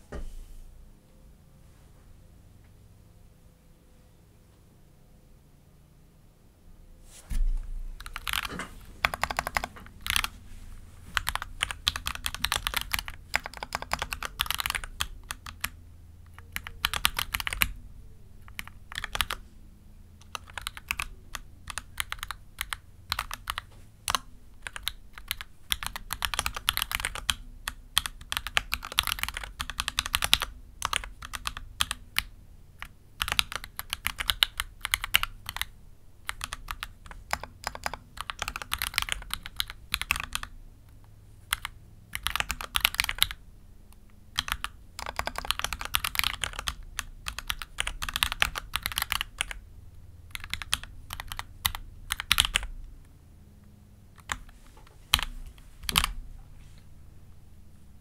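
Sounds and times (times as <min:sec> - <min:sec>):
mechanical keyboard typing: 0:08.0 - 0:10.3, 0:11.1 - 0:17.8, 0:18.4 - 0:19.4, 0:20.2 - 0:40.5, 0:41.5 - 0:43.4, 0:44.3 - 0:49.6, 0:50.3 - 0:52.8, 0:54.2 - 0:56.2.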